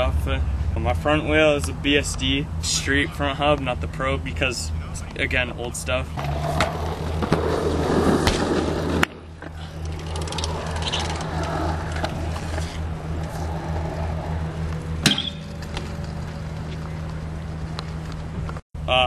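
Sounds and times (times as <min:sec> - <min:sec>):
steady low hum: 0:00.0 - 0:18.9
bike tyres rolling on concrete: 0:06.2 - 0:18.6.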